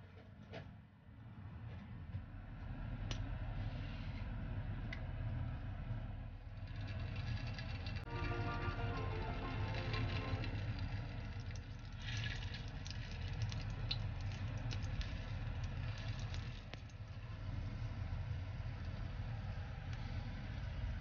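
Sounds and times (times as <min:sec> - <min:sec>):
hot dogs sizzling in oil: 0:06.9 - 0:17.0.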